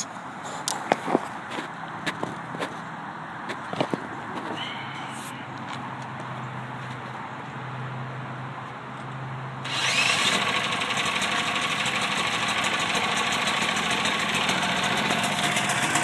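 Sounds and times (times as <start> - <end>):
cordless drill spinning engine: 9.7 - 16.0
generator engine running: 9.7 - 16.0.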